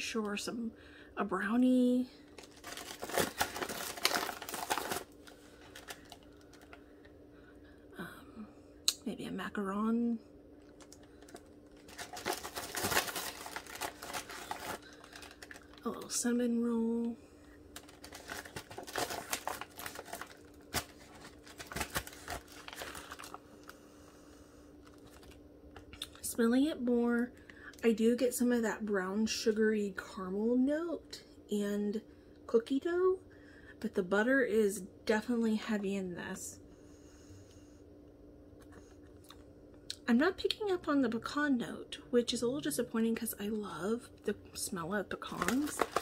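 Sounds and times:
plastic packaging crinkling: 2.2s - 6.9s, 10.6s - 16.5s, 17.7s - 23.8s, 24.8s - 26.2s, 45.1s - 46.0s.

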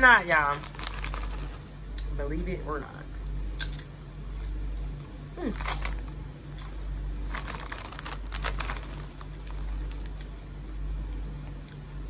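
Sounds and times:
chip bag crinkling: 0.0s - 1.7s, 5.4s - 10.5s
chips crunching while chewed: 0.2s - 1.7s, 3.5s - 10.5s.

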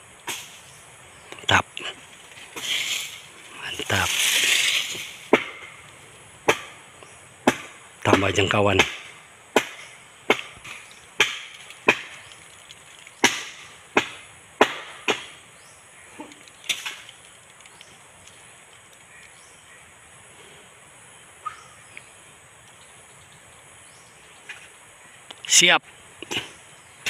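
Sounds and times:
machete chopping stalks: 0.2s - 0.6s, 3.9s - 5.8s, 6.4s - 6.8s, 7.4s - 12.4s, 13.2s - 15.4s.

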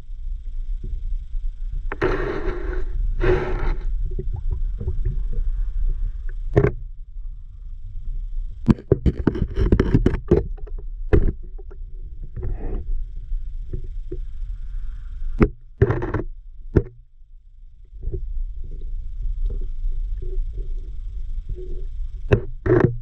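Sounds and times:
low underwater rumble: 0.0s - 23.0s
short rushes of noise: 1.9s - 4.0s
sharp clicks and knocks: 6.5s - 6.8s, 8.7s - 11.8s, 15.4s - 17.0s, 22.3s - 23.0s.

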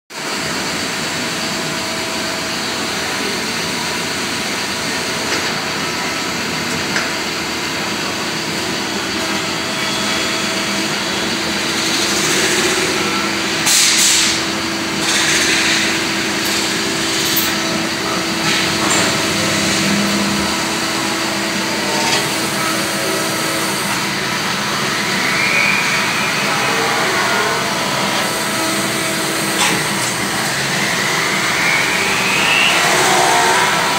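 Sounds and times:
lathe machine drone: 0.2s - 33.9s
machine hum: 0.2s - 33.9s
hissing swells: 30.7s - 33.9s.

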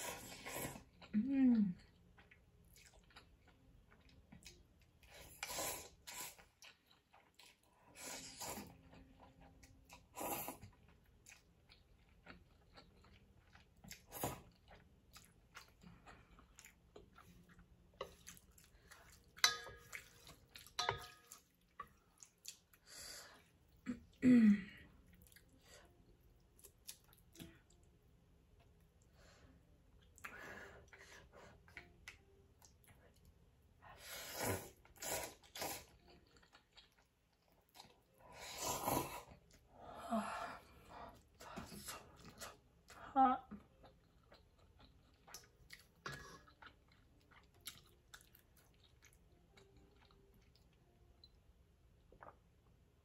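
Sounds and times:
soft chewing clicks: 10.6s - 22.8s, 25.0s - 29.1s, 35.9s - 38.1s, 43.7s - 52.7s
person slurping noodles: 34.0s - 35.9s, 38.3s - 39.4s.

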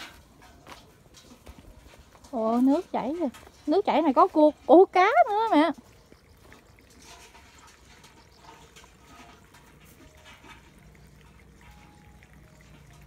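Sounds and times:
soft footsteps on dirt: 0.0s - 4.5s
faint water trickling in ditch: 0.0s - 13.0s.

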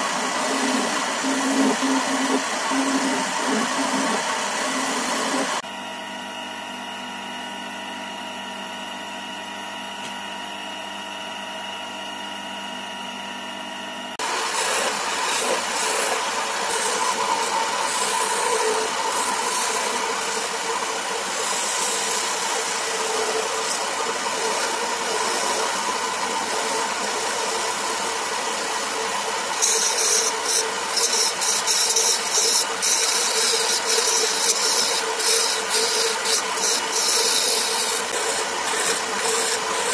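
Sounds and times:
gouge cutting spinning wood: 0.0s - 5.6s, 14.2s - 39.9s
wood lathe humming: 0.0s - 5.7s, 14.2s - 39.9s.

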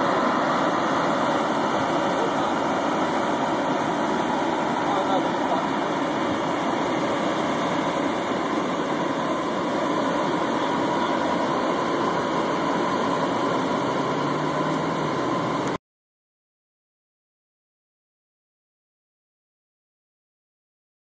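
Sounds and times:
idling vehicle engines: 0.0s - 15.8s.

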